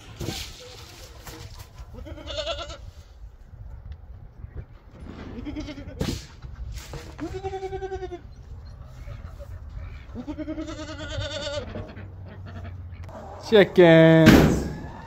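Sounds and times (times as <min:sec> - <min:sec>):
goats bleating: 0:01.9 - 0:02.9, 0:07.2 - 0:08.4, 0:10.0 - 0:13.0.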